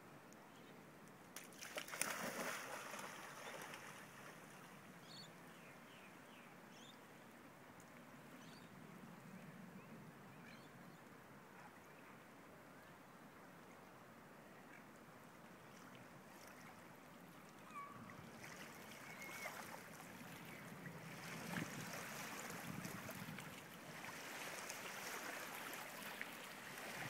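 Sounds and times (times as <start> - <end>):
faint water sounds of swimming: 0.0 - 27.0
dog splashing into river: 1.4 - 4.6.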